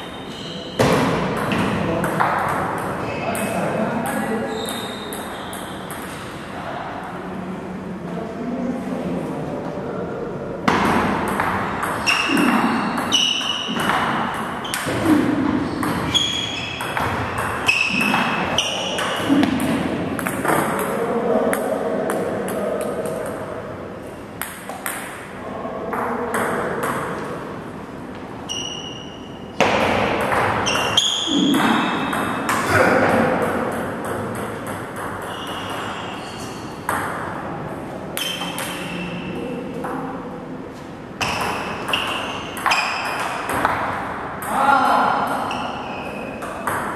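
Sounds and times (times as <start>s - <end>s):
table tennis ball pings: 10.7s - 15.0s, 15.8s - 20.9s, 28.6s - 32.7s, 33.3s - 37.3s, 38.2s - 39.3s, 41.2s - 44.6s.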